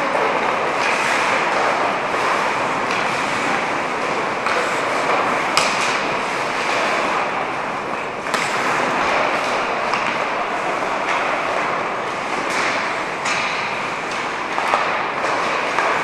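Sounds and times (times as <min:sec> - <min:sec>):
skates hissing on ice: 0:00.1 - 0:07.3, 0:07.9 - 0:10.9.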